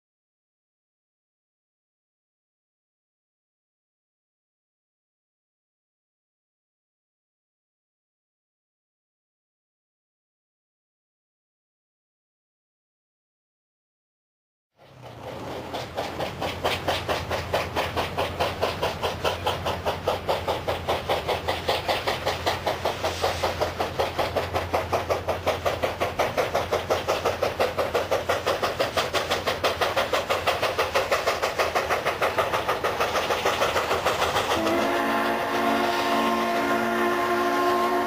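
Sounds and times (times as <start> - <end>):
steam locomotive chuffing: 14.8 - 38.0
steam whistle blast: 34.6 - 38.0.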